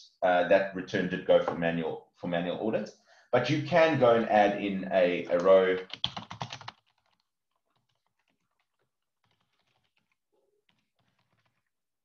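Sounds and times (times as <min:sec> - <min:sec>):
typing on keyboard: 0:05.4 - 0:11.7.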